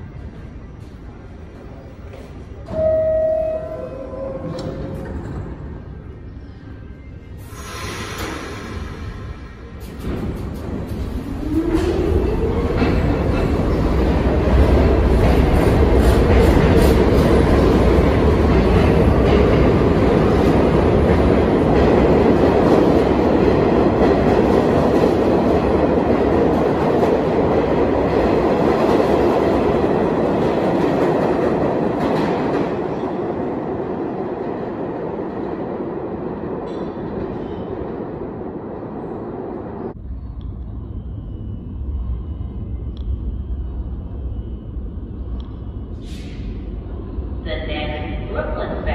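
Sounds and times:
subway train rumbling: 0.0s - 48.9s
train rumbling in tunnel: 0.0s - 48.9s.

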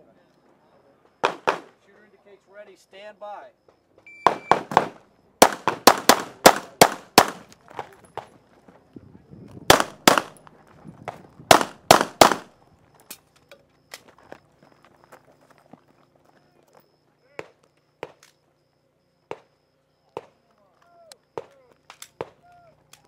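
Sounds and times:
pistol shots: 1.2s - 1.8s, 4.2s - 7.6s, 9.7s - 10.4s, 11.5s - 12.5s.

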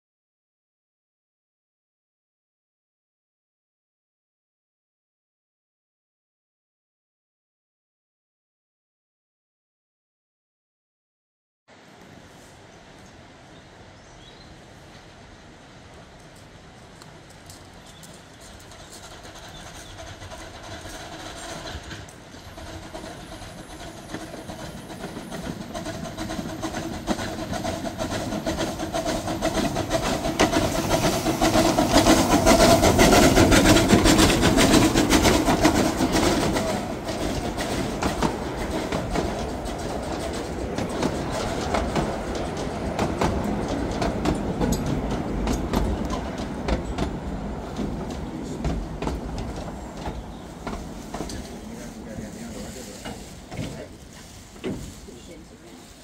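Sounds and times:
steam train passing: 11.7s - 56.0s
wheels clicking over rail joints: 15.9s - 56.0s.

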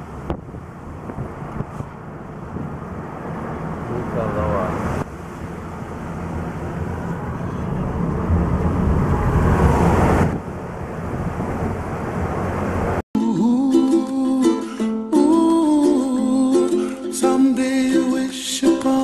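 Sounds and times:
wind noise: 0.0s - 4.1s, 4.7s - 13.0s.

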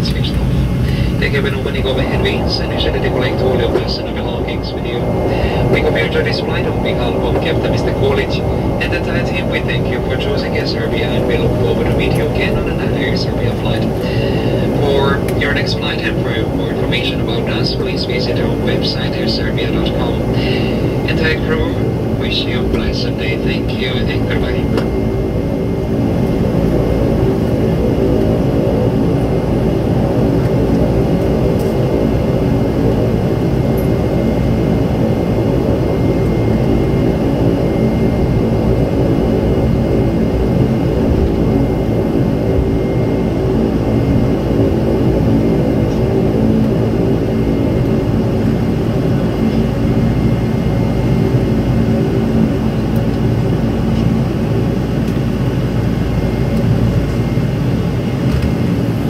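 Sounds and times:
thin steady whine: 0.0s - 59.0s
turboprop engines droning: 0.0s - 59.0s.

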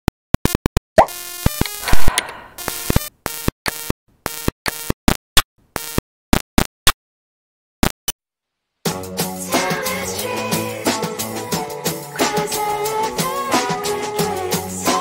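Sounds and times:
quick electronic blips: 0.4s - 5.2s.

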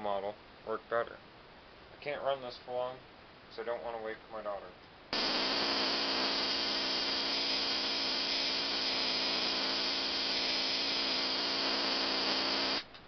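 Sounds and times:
tesla coil electrical buzz: 5.1s - 12.9s.

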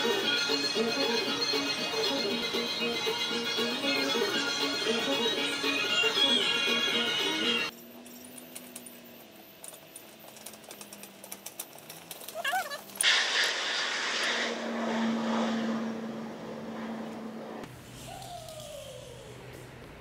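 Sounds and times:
stove chimney roaring flames: 6.8s - 20.0s.

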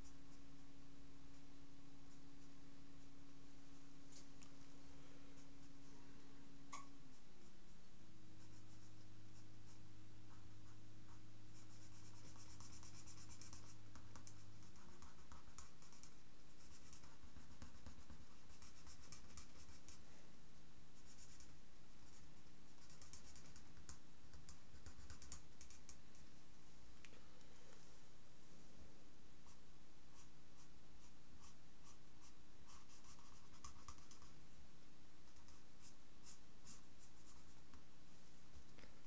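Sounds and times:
low steady hum: 0.0s - 39.0s
felt-tip pen scratching on paper: 10.4s - 20.2s, 29.4s - 34.4s.

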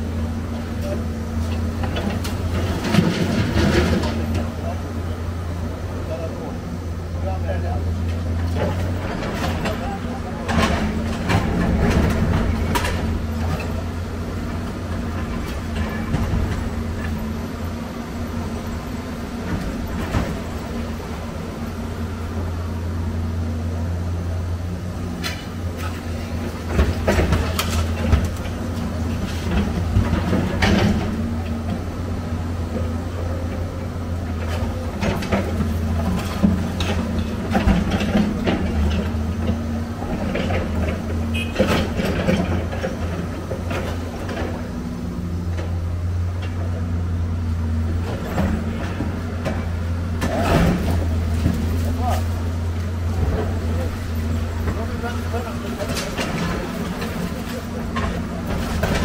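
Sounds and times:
diesel engine running: 0.0s - 59.0s
scrap metal clanking and scraping: 34.2s - 44.7s, 48.0s - 59.0s.

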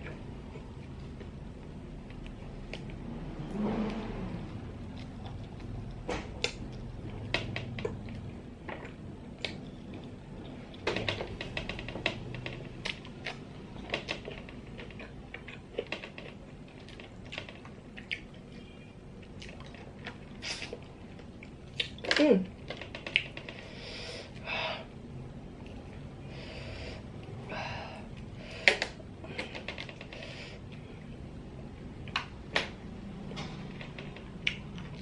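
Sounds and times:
chewing: 4.8s - 10.8s, 12.4s - 23.6s.

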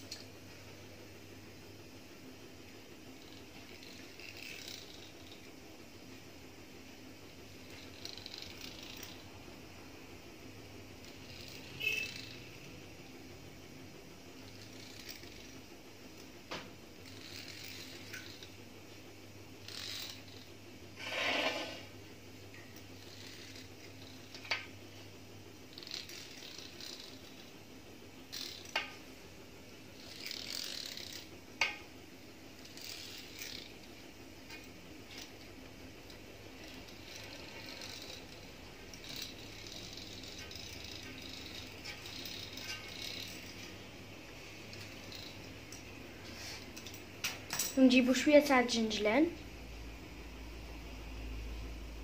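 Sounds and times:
pastry wheel rattling on dough: 2.2s - 49.3s
pastry wheel clicks: 7.6s - 9.6s, 10.9s - 13.2s, 25.6s - 29.2s, 30.0s - 45.9s.

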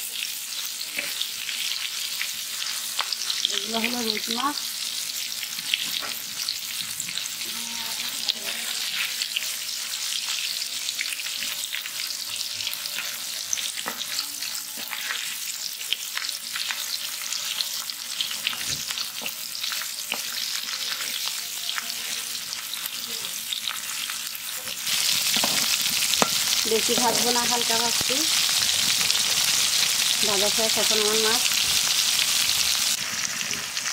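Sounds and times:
fish sizzling in hot oil: 0.0s - 33.9s
metal turner in pan: 24.6s - 31.8s.

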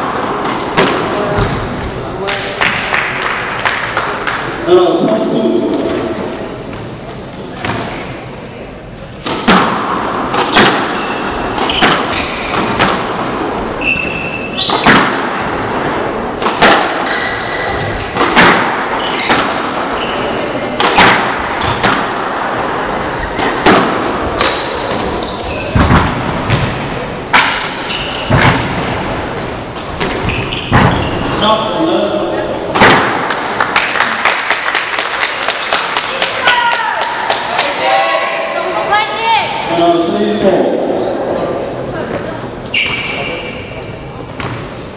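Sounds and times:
squash ball striking rackets and walls: 0.0s - 4.6s, 7.6s - 8.0s, 9.2s - 31.8s, 32.6s - 34.6s, 44.4s - 44.8s
sneakers squeaking on floor: 7.5s - 8.6s, 10.4s - 12.8s, 13.7s - 15.6s, 16.9s - 18.1s, 18.7s - 20.8s, 24.3s - 26.8s, 27.4s - 31.8s, 42.6s - 44.9s.

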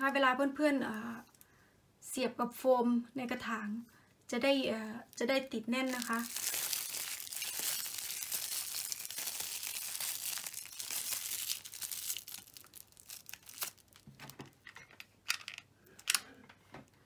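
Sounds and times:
aluminium foil crinkling: 5.1s - 14.2s.

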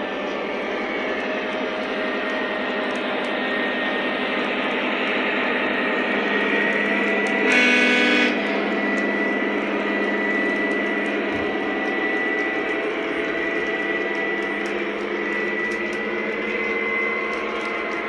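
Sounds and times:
model train wheels rumbling on track: 0.0s - 18.0s.

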